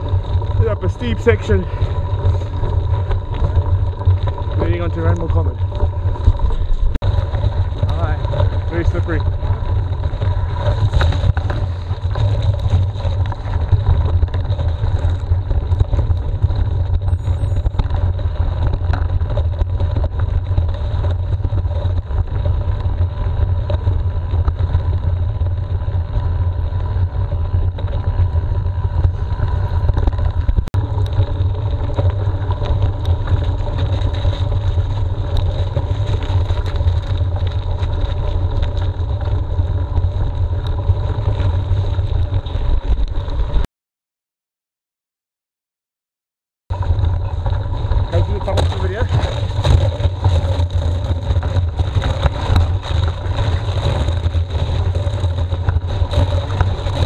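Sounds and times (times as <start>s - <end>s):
bike clicks and rattles: 0.0s - 43.6s, 46.7s - 57.0s
bike tyres rumbling: 0.0s - 43.7s, 46.7s - 57.0s
wind on microphone: 46.7s - 57.0s.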